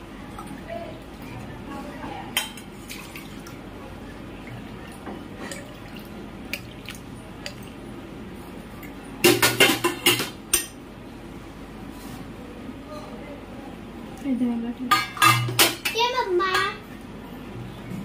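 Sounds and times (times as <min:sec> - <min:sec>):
metal kitchen vessels clinking: 0:09.2 - 0:10.8, 0:14.9 - 0:16.8.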